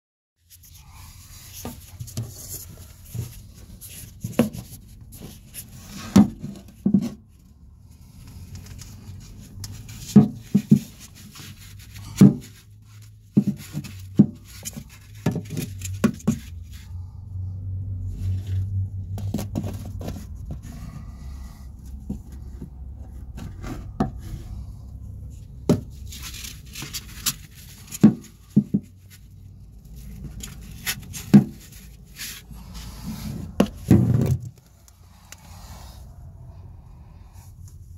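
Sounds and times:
phone handling knocks and scrapes: 9.5s - 16.8s, 33.1s - 34.6s.

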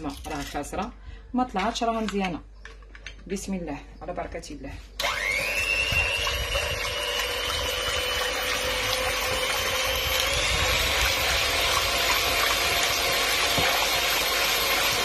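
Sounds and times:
electric hand mixer whisking: 5.0s - 15.0s.

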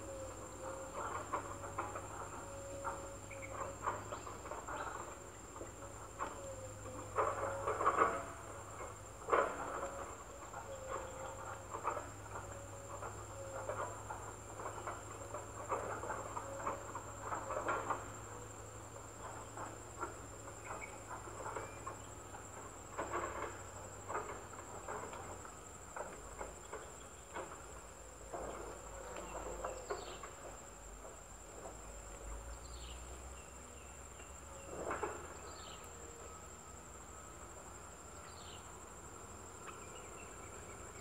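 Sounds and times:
insects droning: 0.0s - 41.0s
crackles and taps in foliage: 28.3s - 32.3s.

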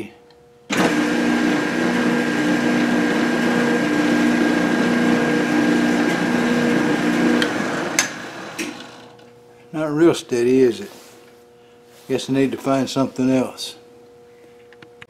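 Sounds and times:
lathe motor humming: 0.7s - 9.3s.

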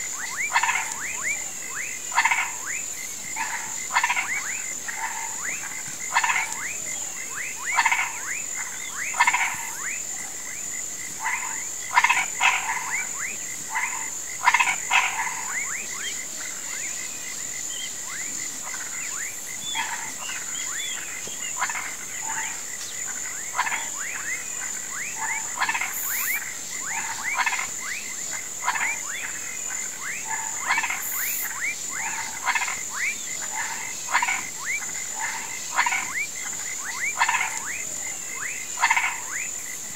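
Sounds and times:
frogs and toads calling: 0.0s - 39.9s
steady high-pitched drone: 25.8s - 27.0s.

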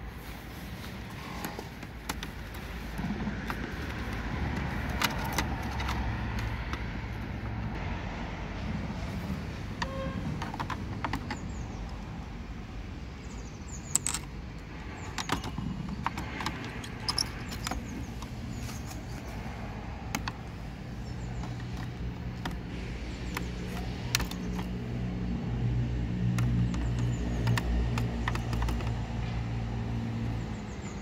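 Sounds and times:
clicks and taps of handling plastic: 1.4s - 7.7s, 9.8s - 12.0s, 20.1s - 20.6s, 21.2s - 24.8s, 26.2s - 29.7s.

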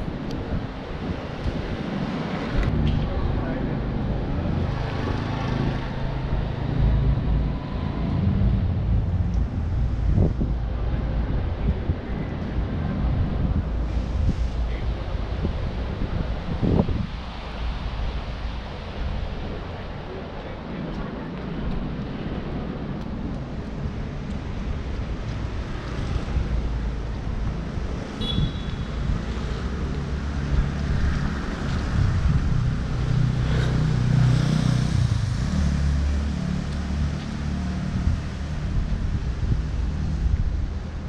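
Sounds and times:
traffic rumble on wet road: 0.0s - 41.0s
rain hiss: 13.8s - 15.4s.

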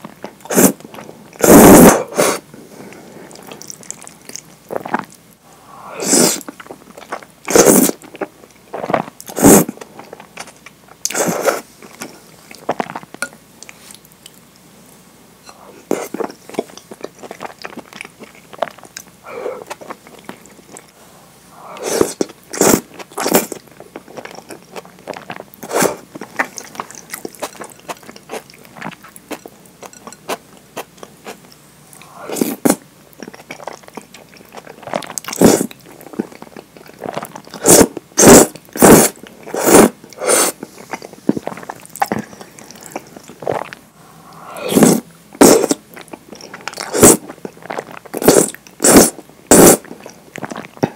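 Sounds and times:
slurping noodles: 1.4s - 2.4s, 5.9s - 6.5s, 7.5s - 8.0s, 8.8s - 9.8s, 21.6s - 23.6s, 25.2s - 27.8s, 34.8s - 35.7s, 37.0s - 43.6s, 44.2s - 45.8s, 46.7s - 50.6s
wet chewing and mouth smacks: 3.4s - 5.2s, 22.2s - 32.1s.

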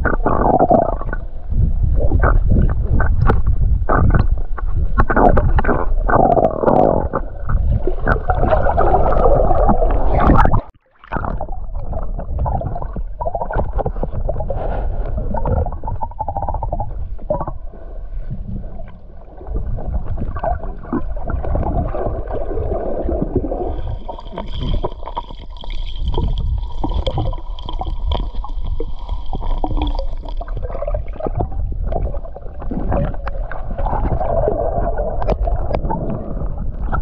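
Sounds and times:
underwater water rumble and gurgling: 0.0s - 37.0s.

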